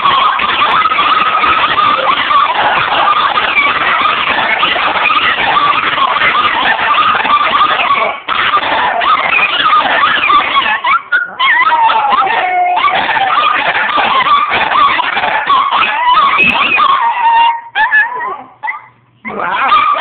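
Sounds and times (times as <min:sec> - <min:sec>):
small dogs howling: 0:00.0 - 0:20.0.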